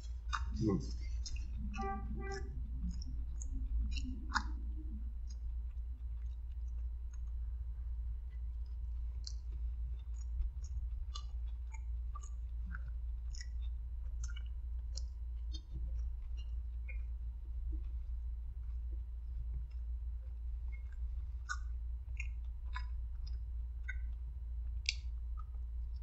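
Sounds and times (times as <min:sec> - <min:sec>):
person chewing: 0:00.0 - 0:07.4, 0:08.2 - 0:17.1
steady low hum: 0:00.0 - 0:26.0.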